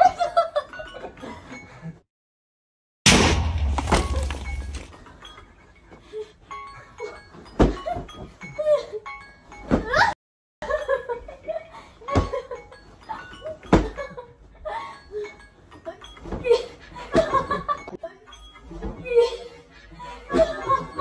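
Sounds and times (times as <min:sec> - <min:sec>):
laughter: 0:00.0 - 0:02.0, 0:09.9 - 0:14.9, 0:16.4 - 0:18.3, 0:19.0 - 0:21.0.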